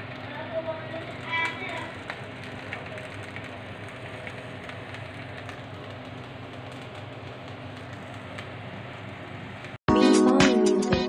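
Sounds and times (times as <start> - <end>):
food sizzling in a pan: 0.0 - 9.8.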